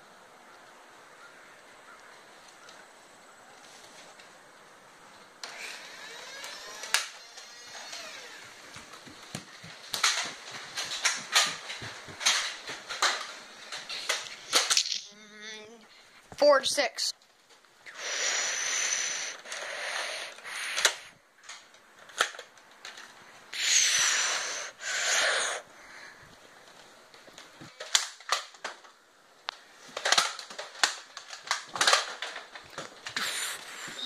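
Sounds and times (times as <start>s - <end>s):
toy blasters whirring: 5.4s - 8.9s, 17.9s - 21.2s, 23.6s - 25.6s, 33.1s - 34.0s.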